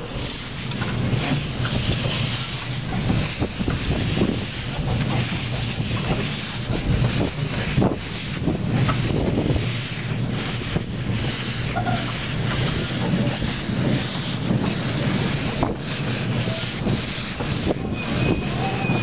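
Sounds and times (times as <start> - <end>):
soft locomotive chuffs: 0.0 - 19.0
steam locomotive hissing steam: 0.0 - 19.0.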